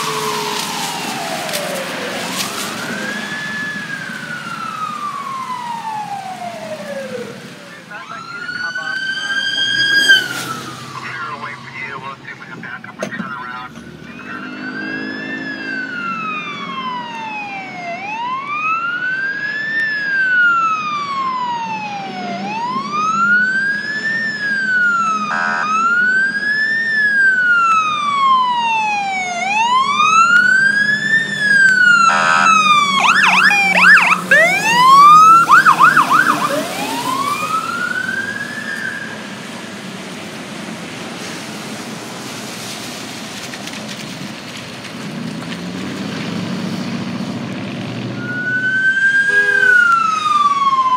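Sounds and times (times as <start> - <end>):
fire siren wailing and yelping: 0.0 - 42.4, 48.1 - 50.9
wet road and rain noise: 0.0 - 50.9
air horn blast: 25.3 - 25.8, 32.0 - 32.7, 49.2 - 50.0.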